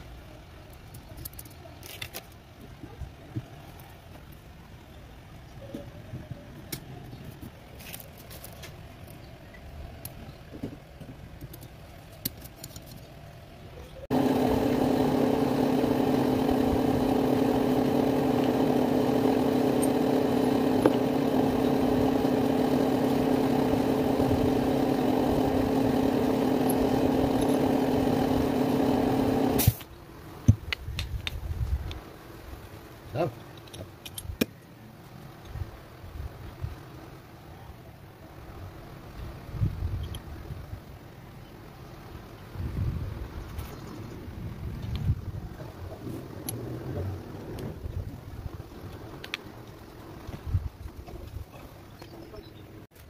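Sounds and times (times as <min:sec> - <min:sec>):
metal engine parts clicking: 0:11.4 - 0:13.2
steady machine drone: 0:14.1 - 0:29.7.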